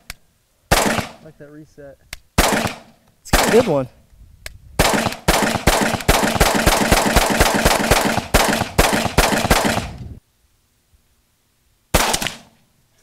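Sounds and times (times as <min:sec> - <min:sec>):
rapid rifle shots: 0:00.7 - 0:01.3, 0:02.4 - 0:03.8, 0:04.8 - 0:10.0, 0:11.9 - 0:12.5.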